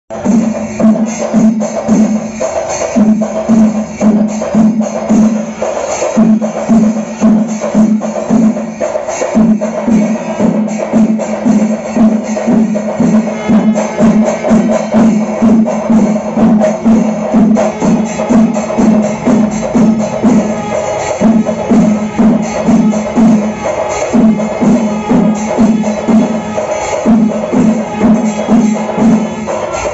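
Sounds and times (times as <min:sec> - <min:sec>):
cymbal clashes: 0:00.1 - 0:29.9
rhythmic drum music: 0:00.1 - 0:29.9.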